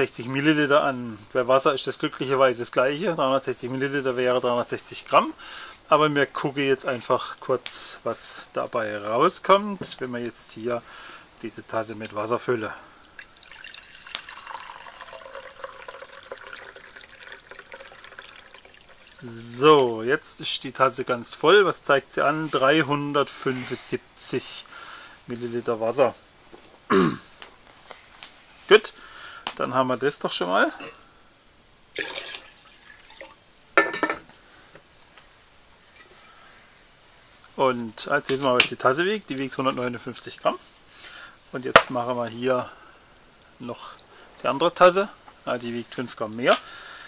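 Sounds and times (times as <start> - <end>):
water pouring into a mug: 13.1 - 19.5, 31.9 - 33.4
mug clinking set down: 33.8 - 34.3.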